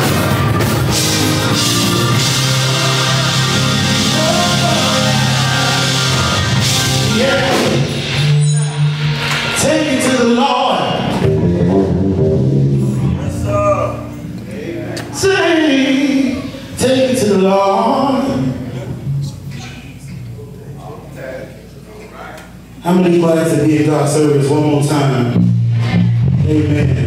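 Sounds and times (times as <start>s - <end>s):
drums: 0.0s - 14.3s, 25.2s - 27.0s
bass guitar: 0.0s - 20.3s, 24.9s - 27.0s
keyboards: 0.0s - 20.3s
person singing: 2.2s - 7.9s.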